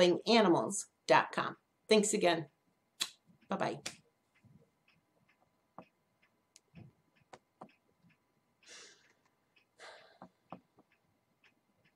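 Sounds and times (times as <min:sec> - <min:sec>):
short breaths: 0:08.6 - 0:09.2, 0:09.8 - 0:10.4.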